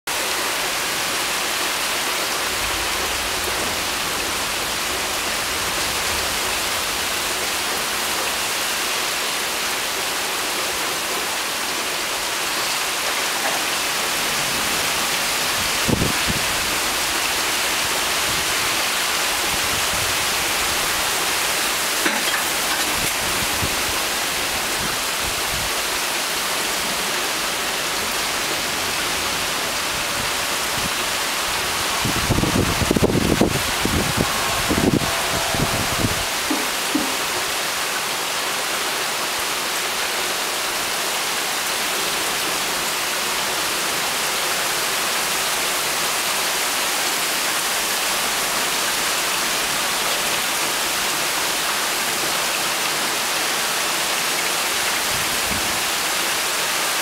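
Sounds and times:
heavy rain pouring: 0:00.1 - 0:57.0.

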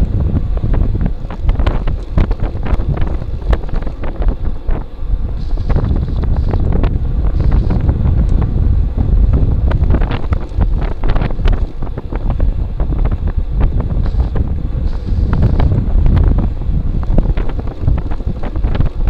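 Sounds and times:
wind buffeting microphone: 0:00.0 - 0:19.0
bicycle clicks and knocks: 0:00.5 - 0:08.5, 0:09.3 - 0:12.3.

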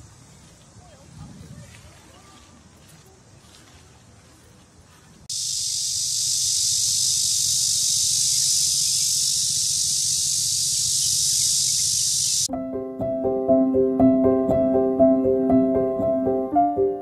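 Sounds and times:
shrill insect chorus: 0:05.3 - 0:12.5
piano music: 0:12.5 - 0:17.0.

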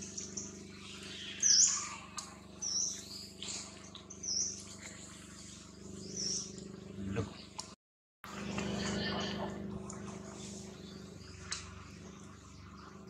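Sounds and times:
high-pitched chirping calls: 0:00.0 - 0:04.6
steady low hum: 0:00.0 - 0:13.0.

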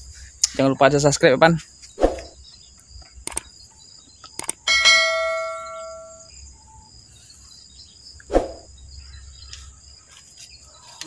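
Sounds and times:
insects droning: 0:00.0 - 0:11.0
light clicks: 0:03.2 - 0:03.5, 0:04.2 - 0:04.6
metallic bell ring: 0:04.7 - 0:06.3.

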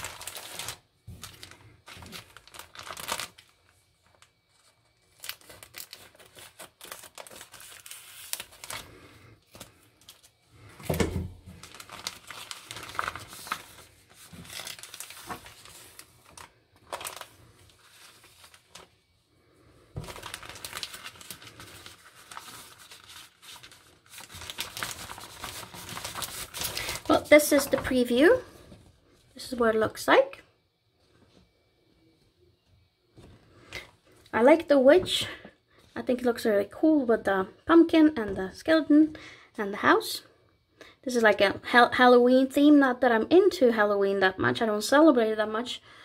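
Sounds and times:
plastic packaging crinkling: 0:00.0 - 0:19.1, 0:20.0 - 0:28.5.

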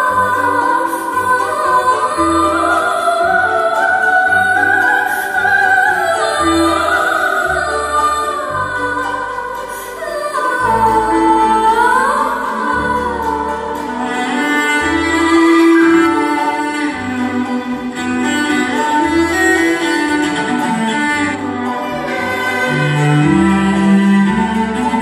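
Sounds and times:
bowed strings: 0:00.0 - 0:25.0
cello: 0:00.0 - 0:25.0
piano: 0:00.0 - 0:25.0
woman singing operatic notes: 0:00.0 - 0:25.0
low bass line: 0:06.4 - 0:25.0.

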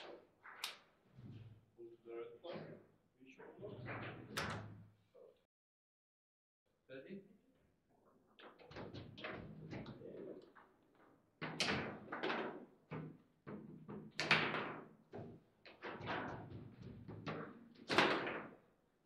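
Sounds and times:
foosball ball clacking: 0:11.4 - 0:18.6
foosball rods slamming: 0:15.8 - 0:18.5.

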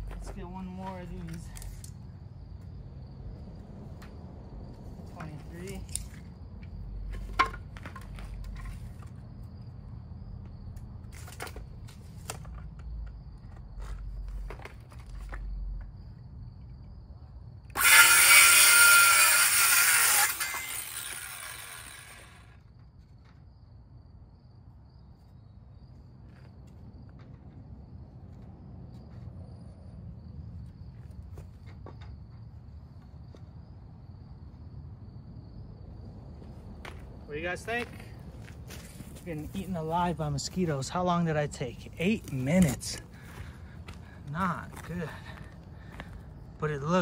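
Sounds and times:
clicks and knocks of wood handled: 0:07.1 - 0:09.2, 0:10.8 - 0:15.9
circular saw cutting wood: 0:17.7 - 0:22.6
saw blade winding down: 0:17.7 - 0:22.6.

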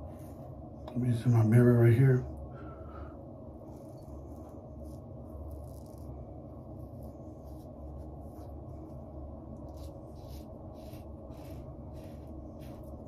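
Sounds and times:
low background hum: 0:00.0 - 0:13.0
razor scraping stubble: 0:09.6 - 0:13.0.

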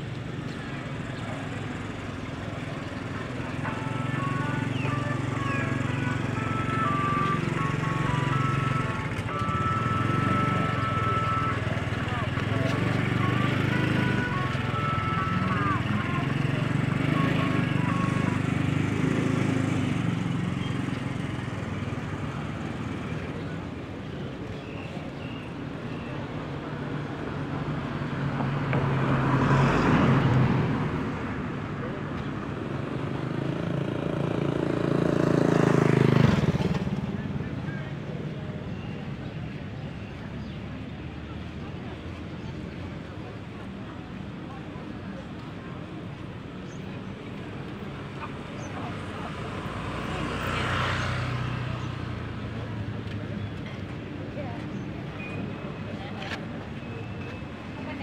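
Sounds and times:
faint background voices: 0:00.0 - 0:58.0
vehicle engine passing by: 0:04.5 - 0:23.5, 0:27.6 - 0:32.2, 0:32.9 - 0:38.6, 0:48.3 - 0:53.7.

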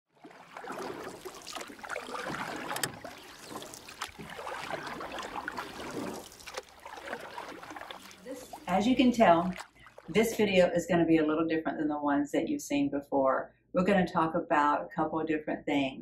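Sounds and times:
water lapping and trickling: 0:00.1 - 0:10.8
small splashes and clicks: 0:00.2 - 0:10.5.

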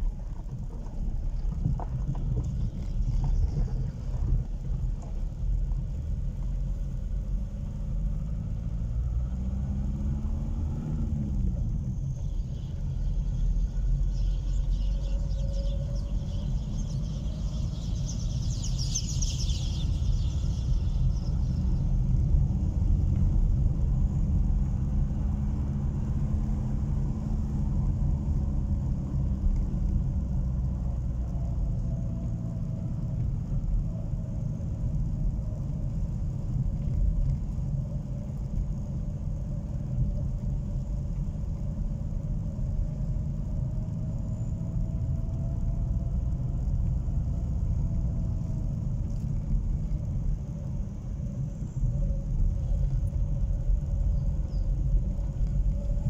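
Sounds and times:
car engine running: 0:00.0 - 0:09.1
road rumble: 0:00.0 - 0:56.0.

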